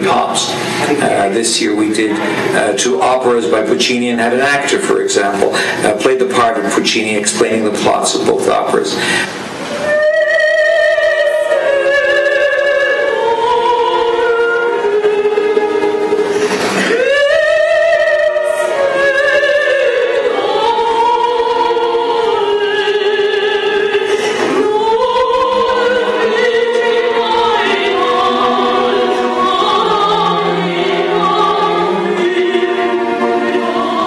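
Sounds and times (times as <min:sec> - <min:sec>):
operatic soprano singing: 0:00.0 - 0:34.0
orchestra playing: 0:25.8 - 0:34.0.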